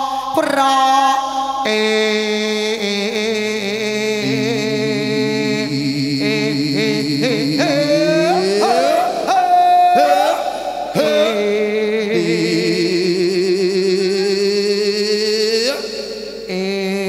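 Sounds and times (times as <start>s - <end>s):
person singing: 1.6s - 10.4s, 11.0s - 15.8s
musical accompaniment: 4.2s - 8.2s.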